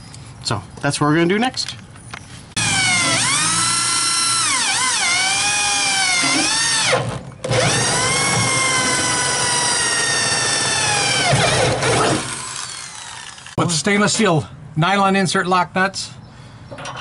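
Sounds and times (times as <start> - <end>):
cordless drill drilling metal: 2.6 - 13.6.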